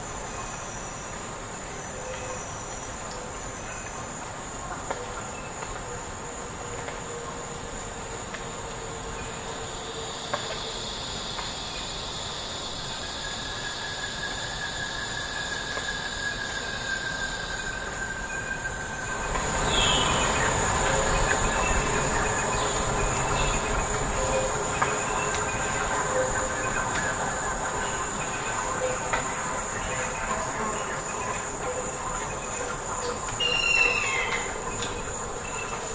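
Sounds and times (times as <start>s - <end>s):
high insect drone: 0.0s - 35.9s.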